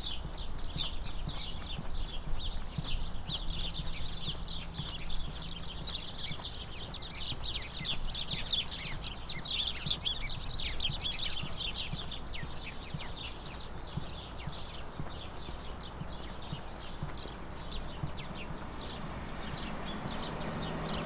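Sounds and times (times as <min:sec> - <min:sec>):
birds chirping: 0:00.0 - 0:21.0
footsteps on trail: 0:00.0 - 0:21.0.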